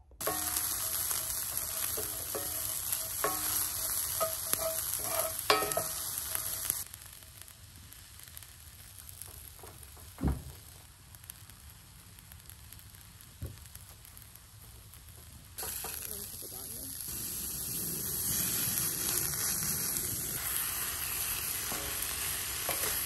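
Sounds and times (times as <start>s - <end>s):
onion sizzling in a skillet: 0.0s - 23.0s
wooden spatula scraping pan: 0.2s - 6.7s
dull thump: 10.2s - 10.6s.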